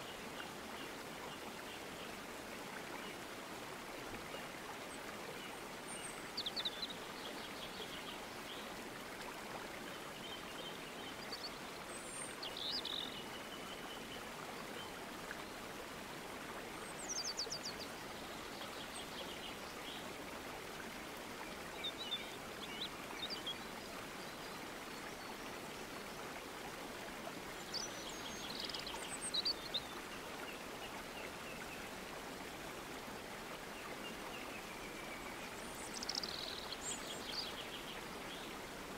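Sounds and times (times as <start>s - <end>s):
stream water flowing: 0.0s - 38.9s.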